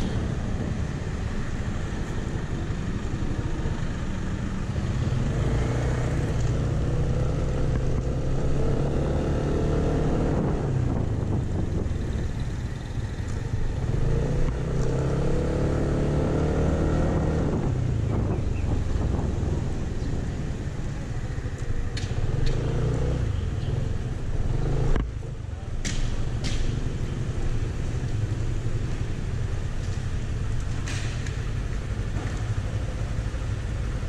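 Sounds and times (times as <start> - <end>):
wind rumble on microphone: 0.0 - 34.0.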